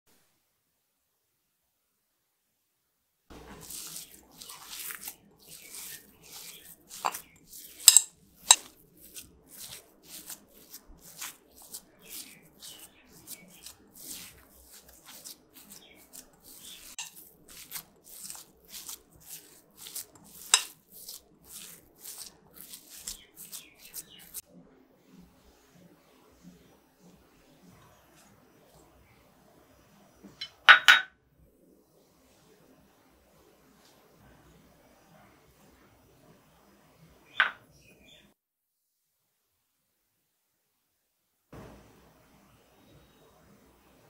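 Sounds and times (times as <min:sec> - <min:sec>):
hand mashing cheese squishing: 0:03.3 - 0:24.5.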